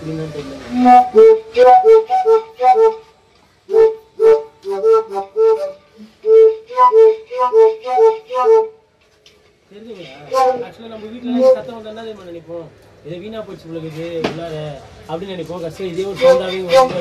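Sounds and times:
tapped pipes hollow notes: 0.7s - 3.1s, 3.7s - 8.8s, 10.3s - 11.8s, 16.0s - 17.0s.

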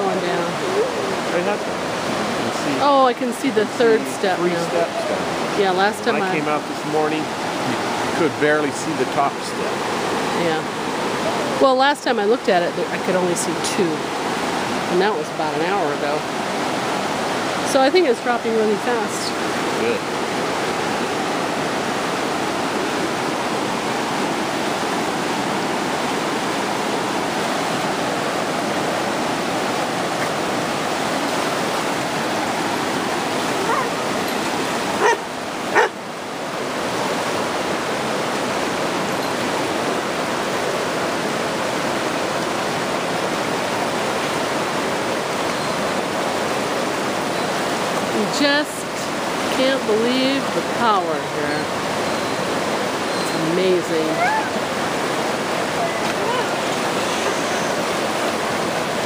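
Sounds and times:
fast river water rushing: 0.0s - 59.0s
dog barking: 33.6s - 34.0s, 35.0s - 36.0s.

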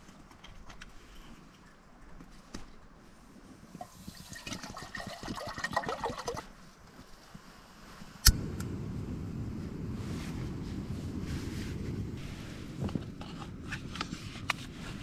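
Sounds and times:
gas burner rushing: 8.2s - 13.2s.

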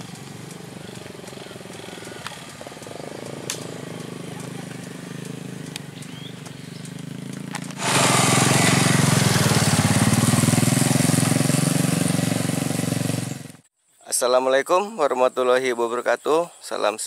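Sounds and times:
motorcycle engines running: 0.0s - 13.6s
rushing hiss: 7.7s - 13.2s.

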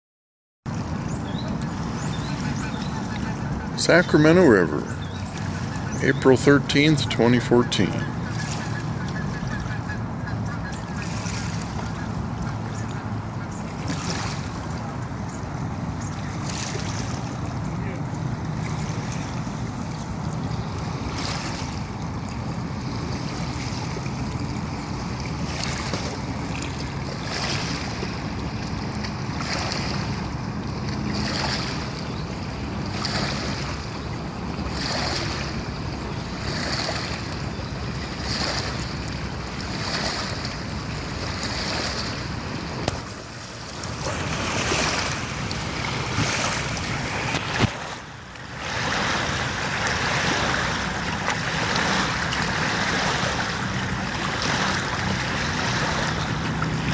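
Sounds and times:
water washing over rocks: 38.0s - 56.9s.

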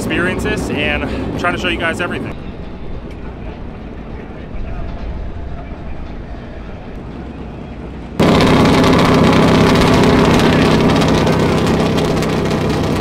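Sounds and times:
loud engine running steadily: 0.0s - 2.3s, 8.2s - 13.0s
low outdoor rumble: 8.2s - 13.0s.

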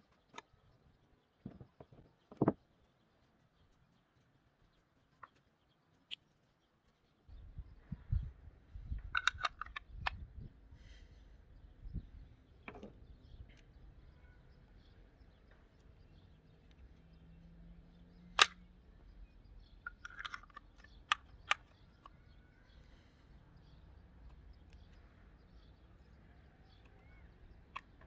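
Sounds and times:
shotgun parts clicking: 9.0s - 10.3s, 18.3s - 18.7s, 19.6s - 22.3s, 27.6s - 28.0s.

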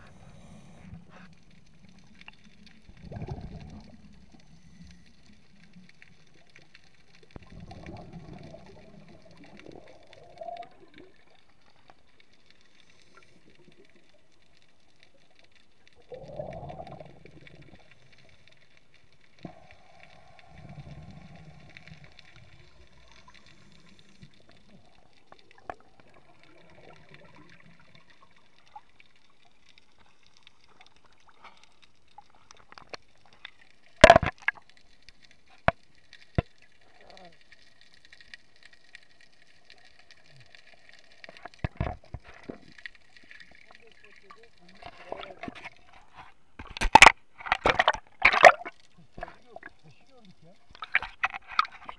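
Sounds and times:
underwater exhalation bubbles: 3.0s - 4.1s, 7.4s - 11.2s, 16.0s - 17.9s.

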